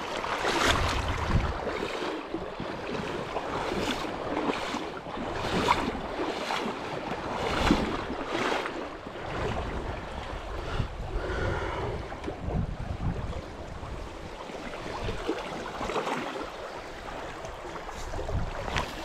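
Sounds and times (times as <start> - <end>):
wind rumbling on microphone: 0.0 - 19.0.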